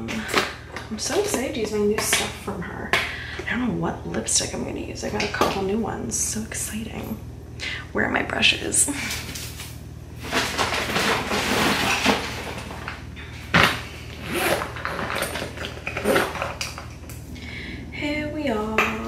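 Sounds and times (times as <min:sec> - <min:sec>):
small hard items clattering: 0:10.2 - 0:16.9.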